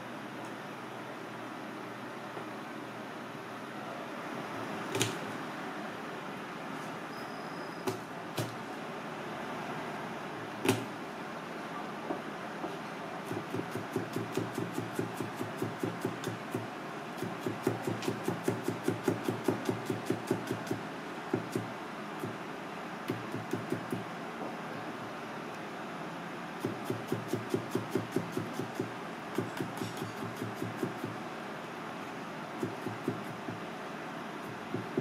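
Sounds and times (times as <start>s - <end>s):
knife chopping on plastic board: 7.9s - 8.6s, 10.6s - 10.9s.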